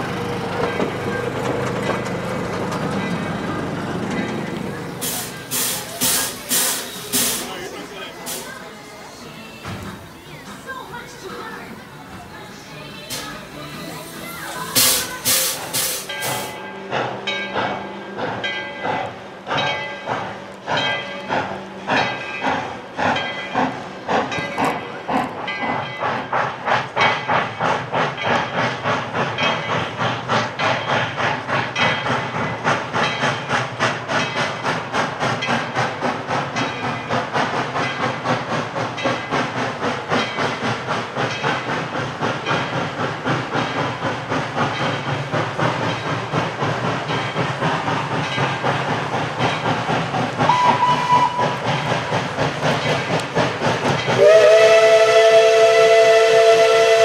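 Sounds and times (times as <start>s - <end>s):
steam locomotive chuffing: 0.0s - 57.0s
chime steam whistle: 50.4s - 51.6s, 54.1s - 57.0s.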